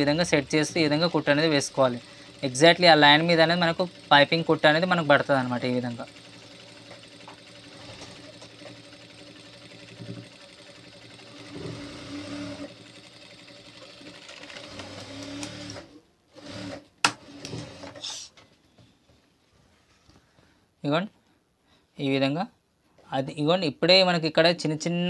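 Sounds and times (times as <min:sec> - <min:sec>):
sewing machine running: 0:00.0 - 0:18.1.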